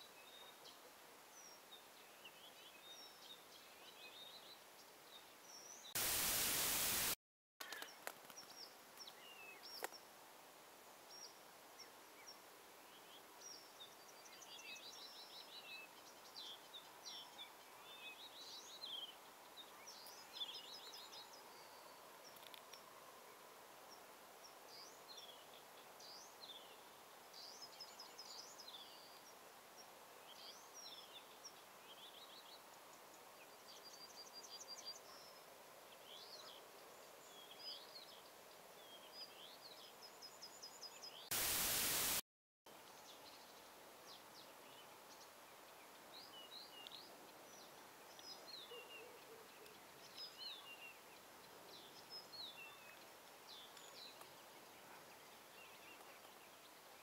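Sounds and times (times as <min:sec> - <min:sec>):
burst of hiss: 0:06.0 - 0:07.2, 0:41.3 - 0:42.2
songbirds chirping and trilling: 0:11.1 - 0:42.2, 0:42.8 - 0:57.0.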